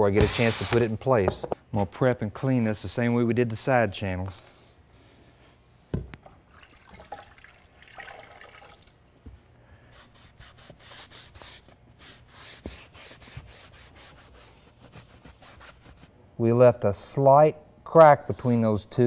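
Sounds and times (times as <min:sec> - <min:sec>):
water from wetting cloth: 0:06.2 - 0:09.1
damp cloth wiping wood: 0:10.0 - 0:16.1.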